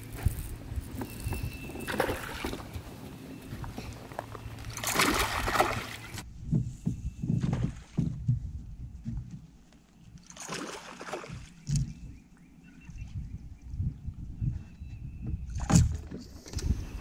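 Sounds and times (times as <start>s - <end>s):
fish splashing in water: 4.5s - 6.2s, 10.3s - 11.7s
dull low thumps: 6.2s - 9.7s, 13.0s - 16.0s.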